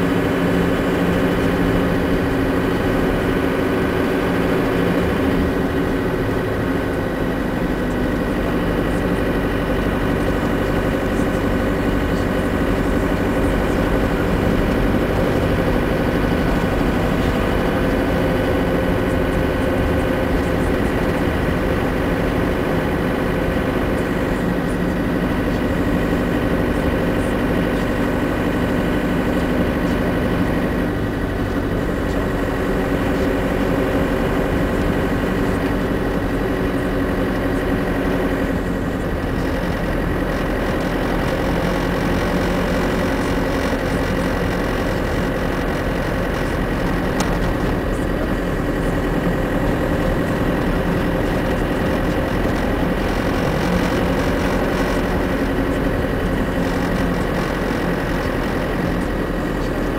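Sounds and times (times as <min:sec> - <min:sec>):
road noise: 0:00.0 - 0:59.9
vehicle engine drone: 0:00.0 - 0:59.9.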